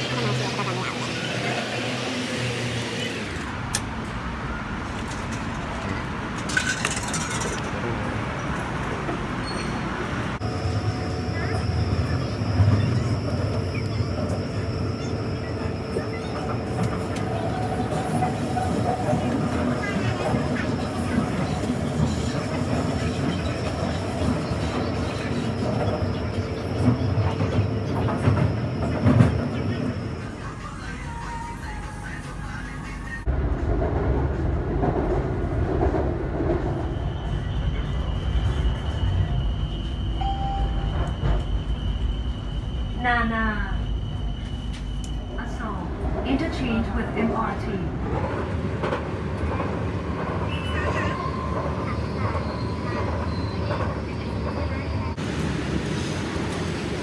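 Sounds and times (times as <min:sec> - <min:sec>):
station ambience: 0:00.0 - 0:57.0
train running rumble: 0:00.0 - 0:57.0
faint high steady tone: 0:39.3 - 0:45.6
short beep: 0:40.1 - 0:42.0.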